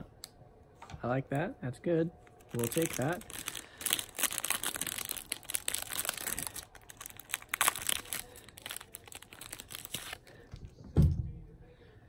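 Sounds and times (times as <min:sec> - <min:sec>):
plastic wrapper crinkling: 0:02.2 - 0:10.4.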